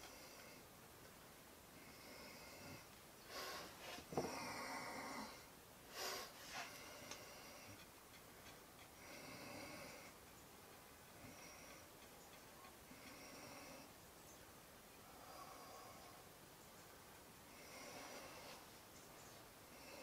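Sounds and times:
faint breathing: 0:01.7 - 0:07.9, 0:08.8 - 0:10.2, 0:11.1 - 0:12.0, 0:12.8 - 0:14.0, 0:14.9 - 0:16.4, 0:17.4 - 0:18.9, 0:19.5 - 0:20.0.

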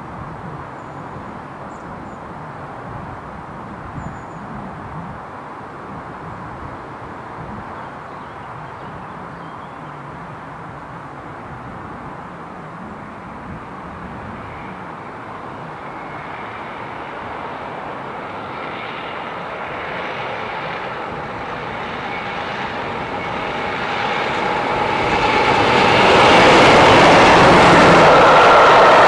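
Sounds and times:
diesel locomotive engine drone: 0:09.9 - 0:29.0.

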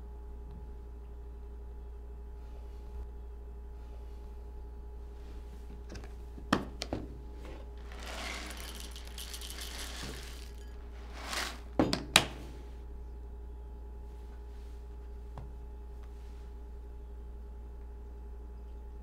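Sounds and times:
dry cereal poured into bowl: 0:07.7 - 0:11.8.

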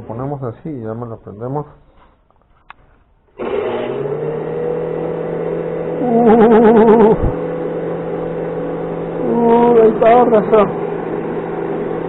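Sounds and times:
juice extractor motor running: 0:03.4 - 0:12.0
person's wavering voice: 0:06.0 - 0:07.4, 0:09.2 - 0:10.7.

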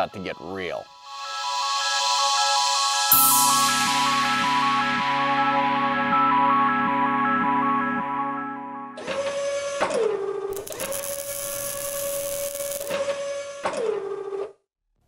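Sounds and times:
electronic music: 0:00.6 - 0:08.6, 0:10.5 - 0:12.9
electric servo whine: 0:10.5 - 0:13.6
hissing crackling burst: 0:10.6 - 0:13.0.

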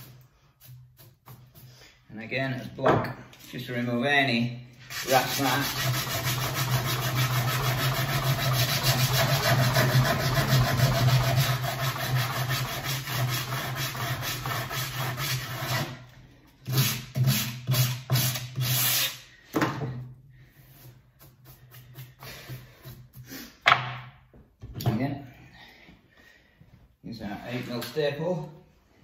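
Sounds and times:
hand sanding wood: 0:04.8 - 0:16.0, 0:20.6 - 0:23.5.

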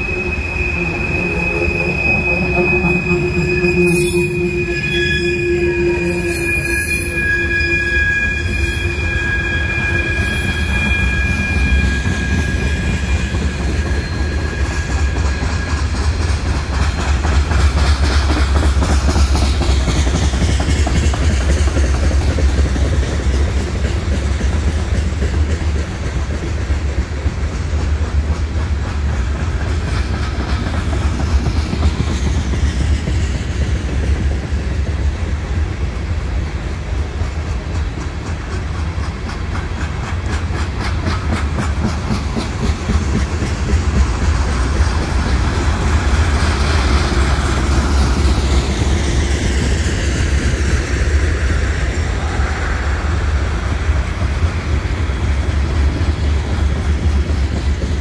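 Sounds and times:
train wheels rumbling on rails: 0:00.0 - 0:58.0
wheels clacking over rail joints: 0:11.2 - 0:52.3.

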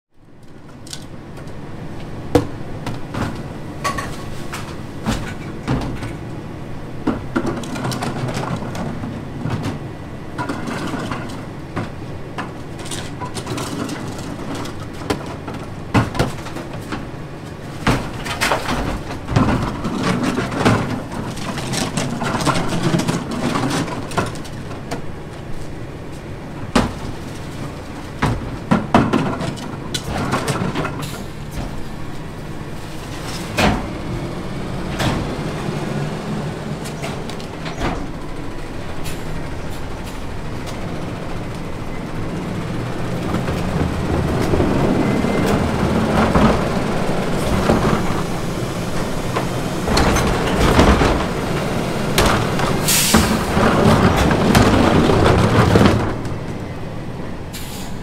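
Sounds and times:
garbage truck engine running: 0:00.2 - 0:58.0.

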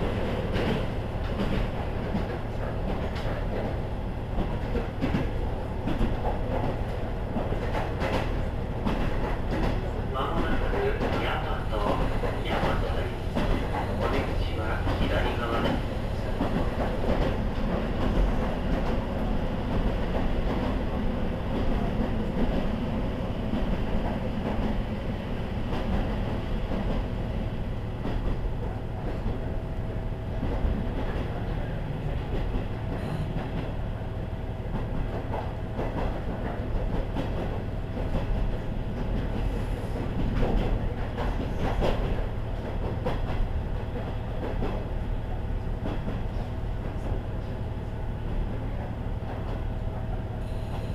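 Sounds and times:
diesel railcar rumbling: 0:00.0 - 0:50.9.

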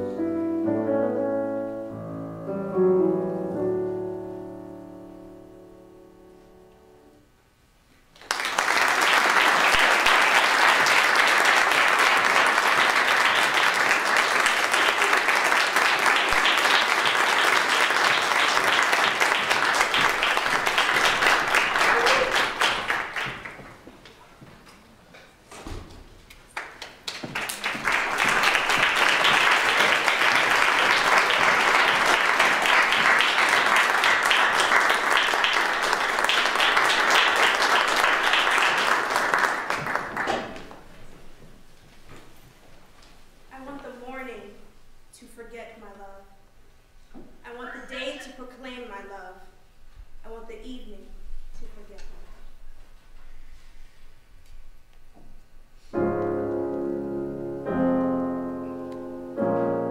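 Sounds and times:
piano chord: 0:00.0 - 0:07.4, 0:55.9 - 0:59.9
audience applause: 0:08.2 - 0:23.8, 0:26.5 - 0:40.9.

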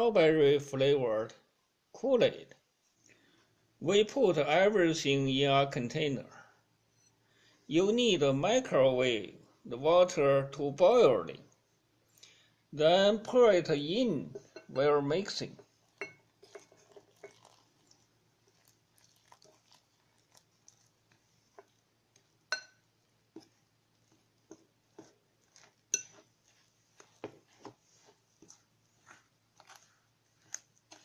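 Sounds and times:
utensil stirring dough: 0:13.2 - 0:31.0
metal clinking on glass: 0:16.0 - 0:17.5, 0:22.5 - 0:22.8.

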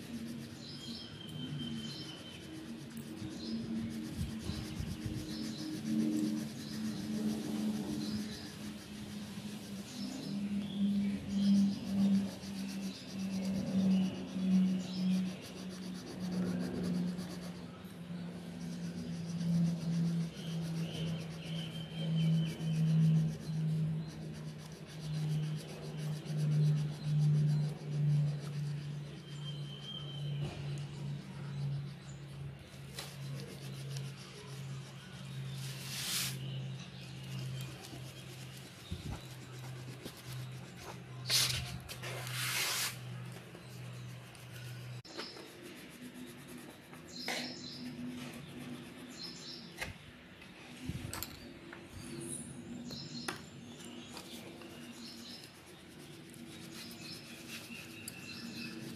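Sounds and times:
pencil scratching on paper: 0:00.0 - 0:10.4, 0:11.2 - 0:32.0, 0:32.8 - 0:49.7, 0:54.3 - 0:58.9
steady low hum: 0:00.0 - 0:42.0.

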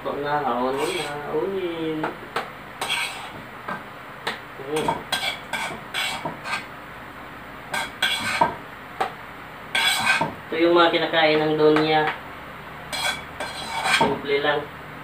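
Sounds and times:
metal spoon scraping in wok: 0:00.7 - 0:01.2, 0:02.8 - 0:03.4, 0:04.8 - 0:06.7, 0:07.7 - 0:08.5, 0:09.7 - 0:10.3, 0:12.9 - 0:14.2.

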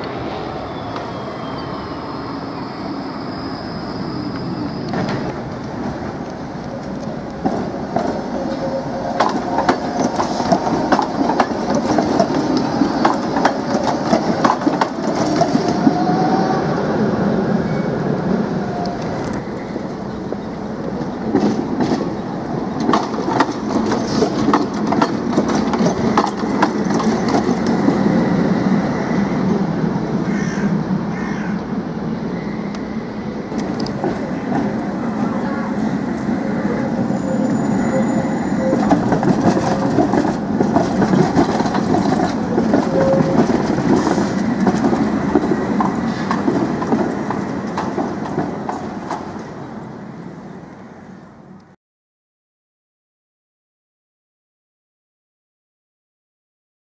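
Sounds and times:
trams rumbling past: 0:00.0 - 0:51.8
wheels clicking over rail joints: 0:04.9 - 0:16.2, 0:20.4 - 0:28.1, 0:38.6 - 0:49.6.

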